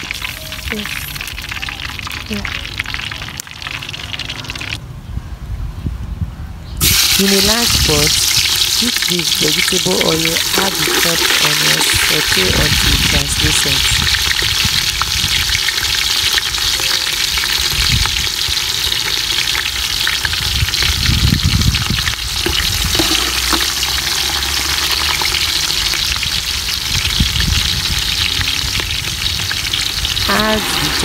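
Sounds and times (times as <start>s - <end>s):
onions sizzling in oil: 0.0s - 4.8s, 6.8s - 31.0s.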